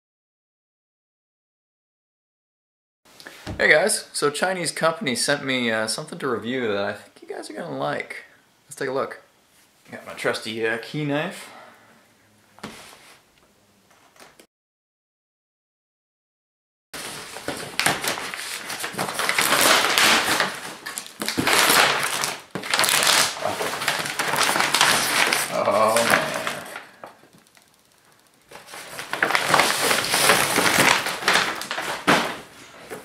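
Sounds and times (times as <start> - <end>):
paper being torn and crumpled: 17.0 - 27.0, 28.5 - 32.4.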